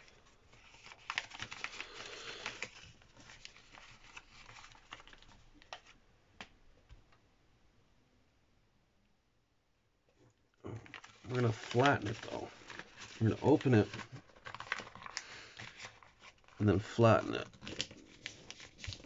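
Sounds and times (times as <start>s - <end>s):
paper crinkling and rustling: 0.0s - 6.0s, 10.7s - 19.0s.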